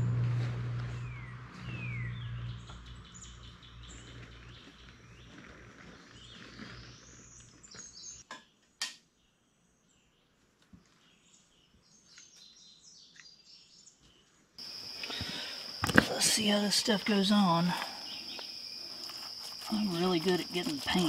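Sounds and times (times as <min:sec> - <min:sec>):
low steady hum: 0:00.0 - 0:04.3
songbirds chirping and trilling: 0:00.0 - 0:21.0.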